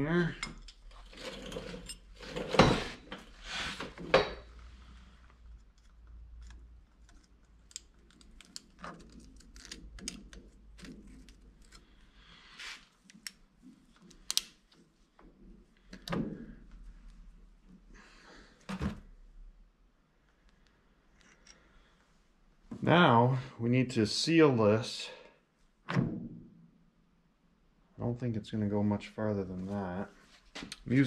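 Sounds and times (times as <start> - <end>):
metal pliers clicking and scraping: 5.6 - 12.1, 13.1 - 14.5, 21.1 - 21.6.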